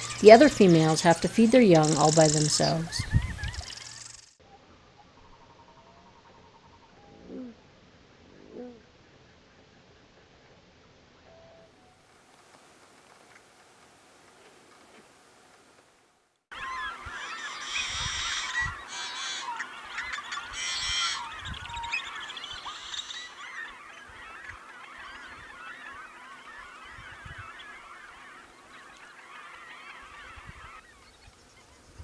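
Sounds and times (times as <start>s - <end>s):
chorus of chattering marsh birds: 0.0s - 4.4s, 16.5s - 32.0s
blackbird rasping screeches: 16.6s - 24.4s.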